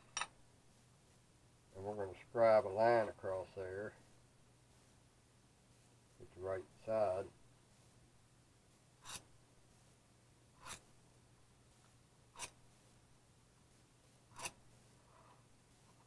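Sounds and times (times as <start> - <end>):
steel scriber scratching steel: 9.0 - 9.3, 10.6 - 10.9, 12.4 - 12.6, 14.3 - 15.4.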